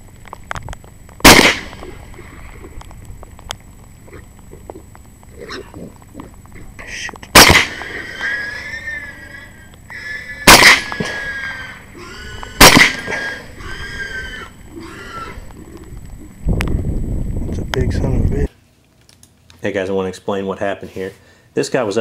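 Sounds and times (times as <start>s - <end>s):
suppressed rifle shots: 1.2s - 2.0s, 7.3s - 8.0s, 10.4s - 11.3s, 12.6s - 13.2s
wild boar squealing: 5.3s - 15.8s.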